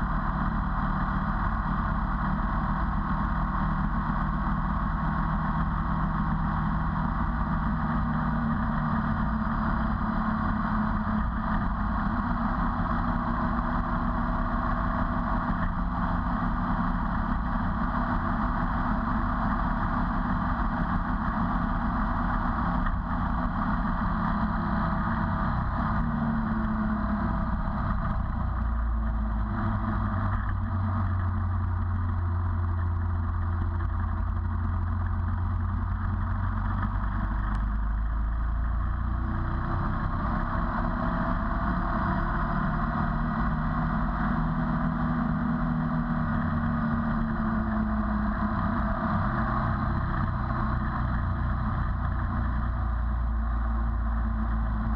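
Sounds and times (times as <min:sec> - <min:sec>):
motorcycle engine running: 0:00.0 - 0:54.9
road and wind noise: 0:00.0 - 0:54.9.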